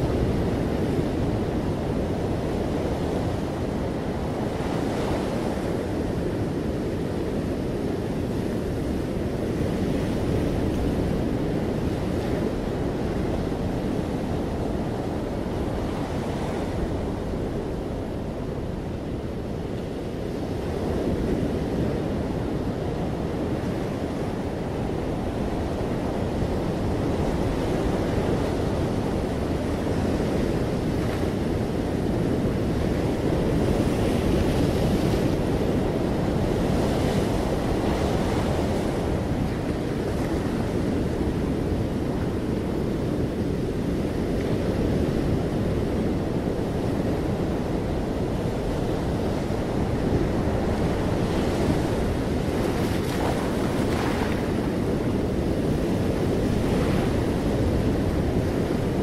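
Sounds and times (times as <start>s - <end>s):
ocean surf breaking: 24.3s - 59.0s.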